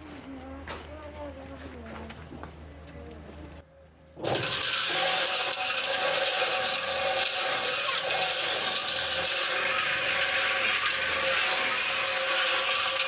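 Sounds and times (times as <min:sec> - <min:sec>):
concrete mixer motor hum: 0:00.0 - 0:13.0
drum rattling stones: 0:04.2 - 0:13.0.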